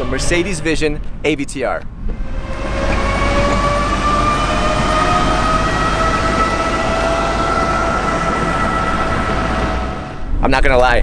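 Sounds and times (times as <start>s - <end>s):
road and wind noise: 0.0s - 11.0s
electric motor whine rising: 2.1s - 10.3s.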